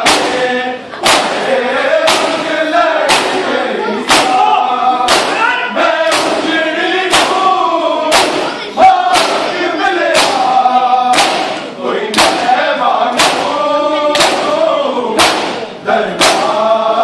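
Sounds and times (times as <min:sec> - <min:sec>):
men chanting together: 0:00.0 - 0:17.0
hands slapping bare chests: 0:02.1 - 0:02.4, 0:06.1 - 0:06.4, 0:07.1 - 0:07.4, 0:08.1 - 0:08.4, 0:09.1 - 0:09.5, 0:10.2 - 0:10.4, 0:11.1 - 0:12.5, 0:13.2 - 0:14.6, 0:15.2 - 0:16.5.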